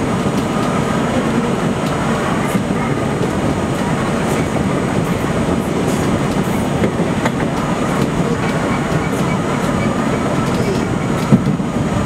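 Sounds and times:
train wheels rumbling on rail: 0.0 - 12.0
sharp clicks of wheels on track: 1.8 - 4.6, 5.8 - 11.8.

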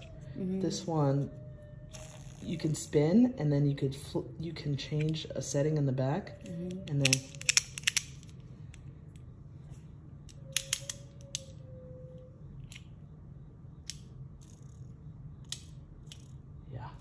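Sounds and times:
metal fidget coin clicking: 6.4 - 8.3.

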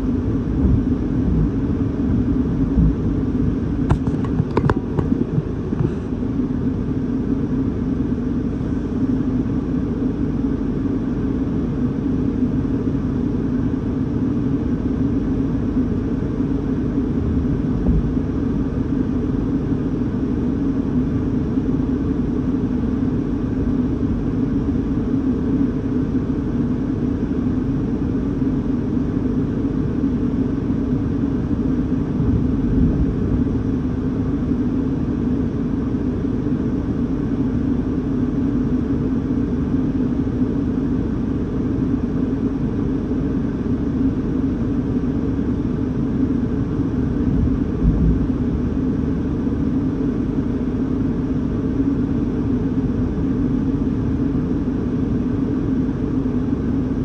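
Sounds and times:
deep rumbles: 0.0 - 6.3, 16.6 - 19.7, 32.1 - 34.1, 47.0 - 49.4
storm wind rumbling outside car: 0.0 - 7.4, 13.8 - 22.2, 31.1 - 36.8, 46.2 - 51.0.

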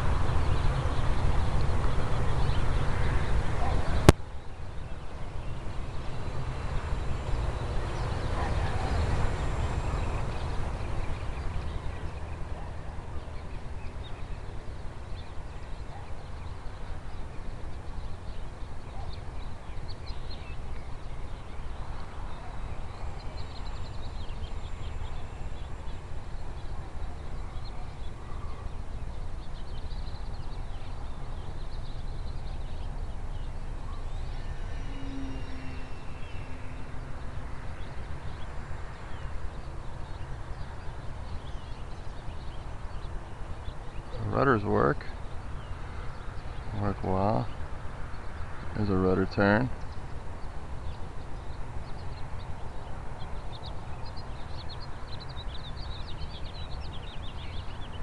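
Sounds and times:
faint bird chirps: 0.0 - 58.0
wind rumbling on microphone: 0.0 - 58.0.

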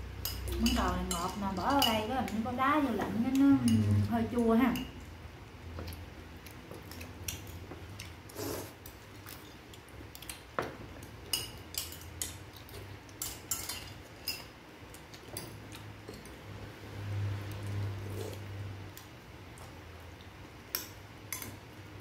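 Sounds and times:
spoons clinking on ceramic bowls: 0.2 - 2.4, 11.2 - 12.4, 21.3 - 21.6.

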